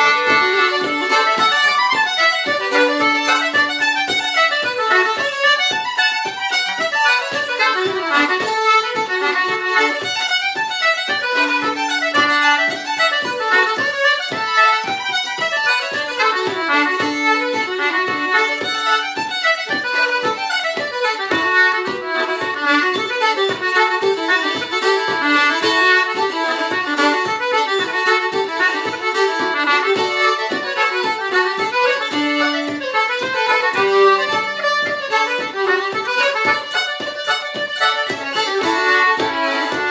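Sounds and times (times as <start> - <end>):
concertina: 0.0 - 39.9
fiddle: 0.0 - 39.9.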